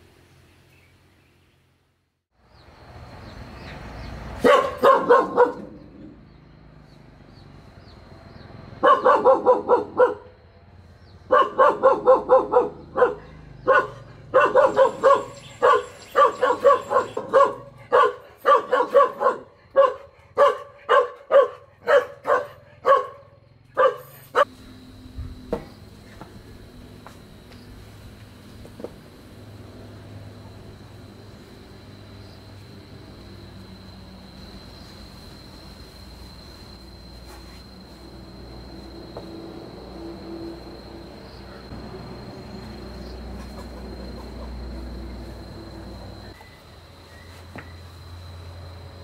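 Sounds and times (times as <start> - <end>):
dog barking: 4.4 - 6.0, 8.8 - 10.4, 11.3 - 24.5.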